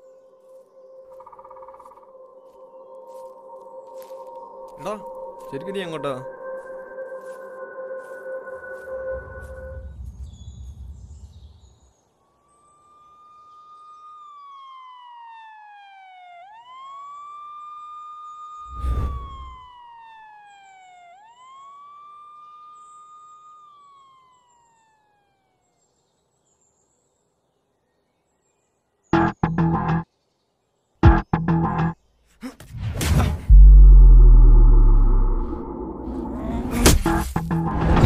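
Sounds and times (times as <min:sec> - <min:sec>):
siren wailing: 0:00.5 - 0:10.0, 0:12.3 - 0:25.8, 0:33.5 - 0:38.0.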